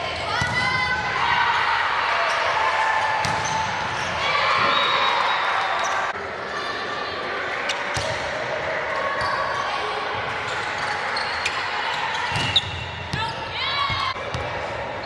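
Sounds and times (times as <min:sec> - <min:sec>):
players calling and chattering: 0:00.0 - 0:15.0.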